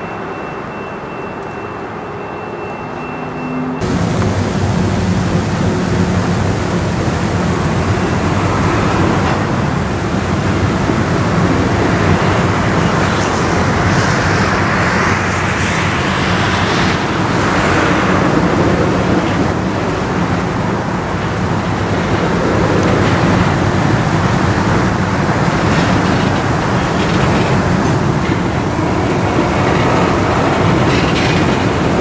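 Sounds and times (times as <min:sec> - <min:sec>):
train wheels rumbling on rail: 0:02.8 - 0:32.0
low steady hum: 0:03.8 - 0:13.9.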